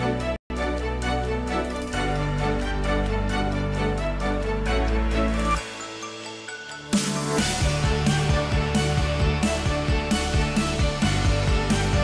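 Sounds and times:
sustained chords over bass: 0:07.4 - 0:12.0.

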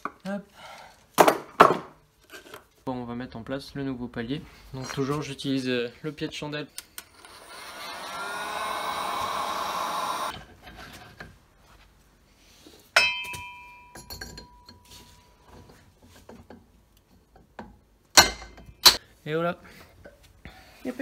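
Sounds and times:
angle grinder spinning: 0:07.0 - 0:10.4
sharp metallic clink: 0:13.0 - 0:14.8.

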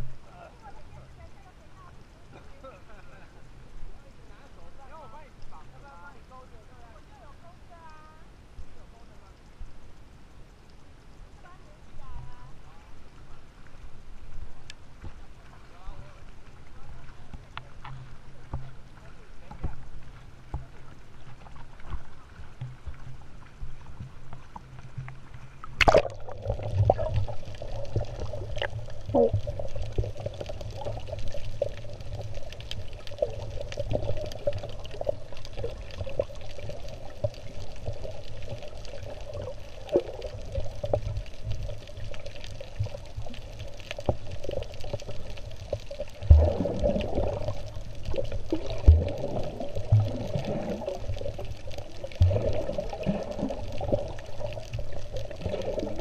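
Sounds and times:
underwater water sloshing and gurgling: 0:00.0 - 0:56.0
low underwater thumps: 0:17.9 - 0:39.4, 0:44.0 - 0:51.6
sharp splash: 0:25.7 - 0:30.1.

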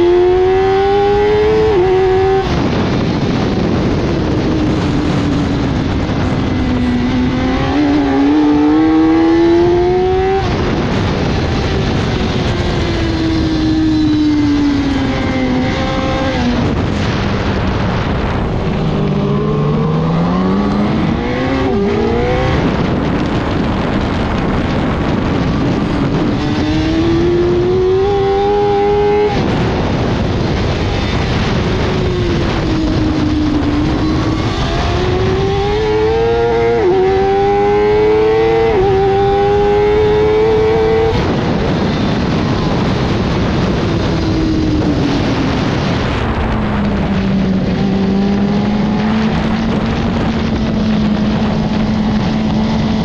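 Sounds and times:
motorcycle engine revving: 0:00.0 - 0:53.0
wind noise: 0:00.0 - 0:53.0.

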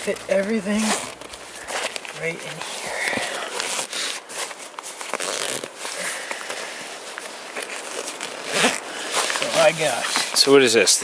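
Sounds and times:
nylon fabric rustling: 0:00.0 - 0:11.0
zippers being pulled shut: 0:05.0 - 0:06.6, 0:07.5 - 0:10.4.

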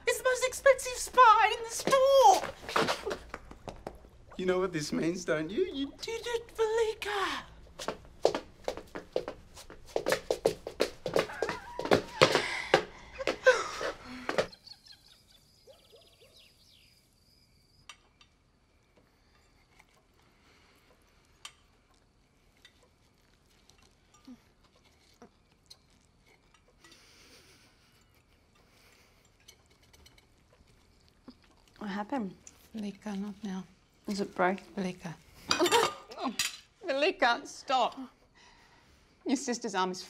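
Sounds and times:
faint clicks and clinks: 0:17.8 - 0:31.8.

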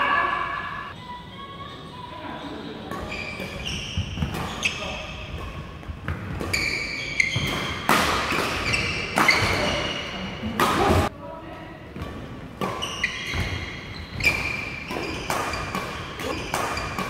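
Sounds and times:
shoes squeaking on court floor: 0:02.4 - 0:10.6, 0:12.0 - 0:17.0
rackets hitting shuttlecock: 0:02.9 - 0:11.1, 0:12.0 - 0:17.0.

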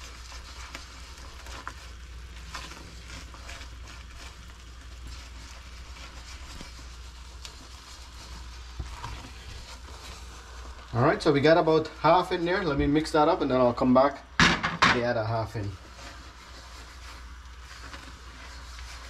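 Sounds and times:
spatula scraping in wok: 0:00.0 - 0:13.8
faint sizzle: 0:00.0 - 0:19.0.

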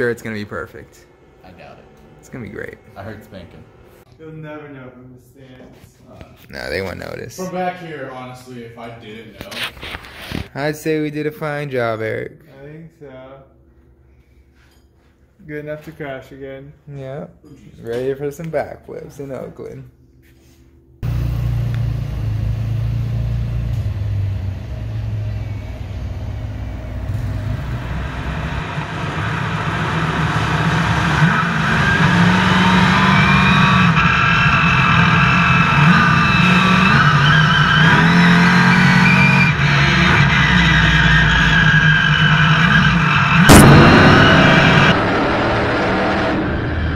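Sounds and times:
truck engine revving: 0:21.0 - 0:46.9.

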